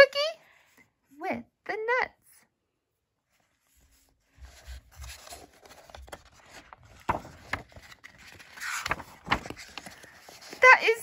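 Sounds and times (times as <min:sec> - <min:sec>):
book pages rustling and turning: 0:03.2 - 0:11.0.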